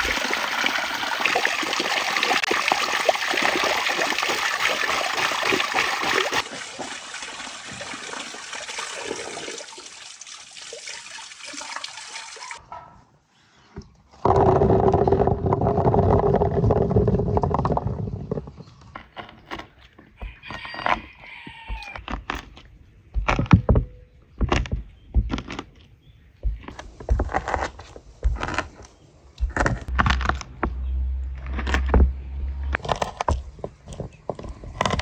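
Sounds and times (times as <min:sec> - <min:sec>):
water pouring: 0:00.0 - 0:12.6.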